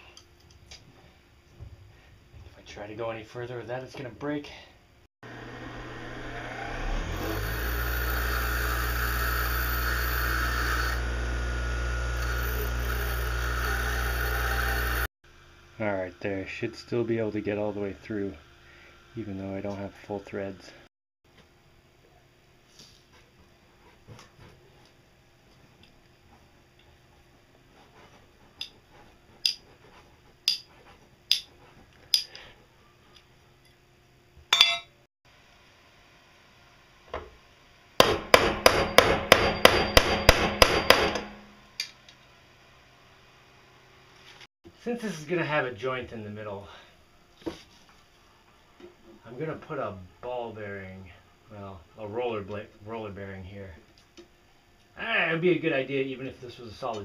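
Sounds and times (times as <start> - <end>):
bench grinder motor running: 5.2 - 15.1.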